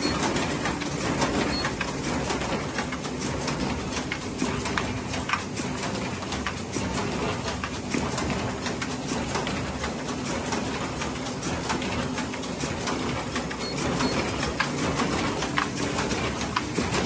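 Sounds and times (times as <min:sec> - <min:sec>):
machine mechanical clatter: 0:00.0 - 0:17.0.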